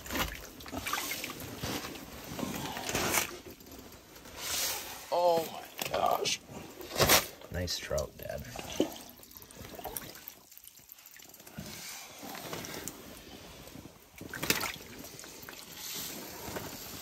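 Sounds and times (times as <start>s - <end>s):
fish thrashing in water: 0.0s - 3.4s, 8.5s - 12.9s, 14.2s - 15.7s
water sloshing and splashing: 0.0s - 17.0s.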